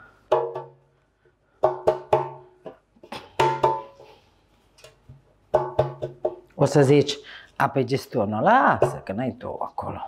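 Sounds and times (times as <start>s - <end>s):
hand knocking metal baking tin: 5.5s - 6.4s.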